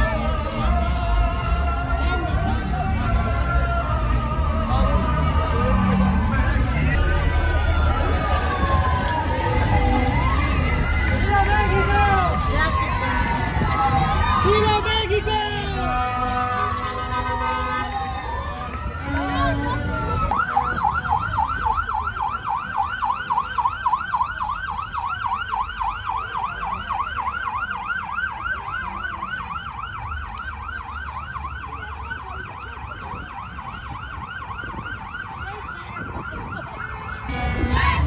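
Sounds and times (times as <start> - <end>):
siren yelping: 18.1 - 38.0.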